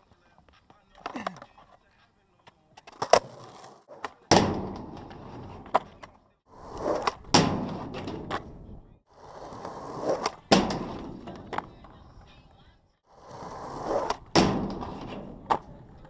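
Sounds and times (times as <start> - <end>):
skateboard wheels rolling on concrete: 0.0 - 16.0
skateboard grinding on metal edge: 13.2 - 15.6.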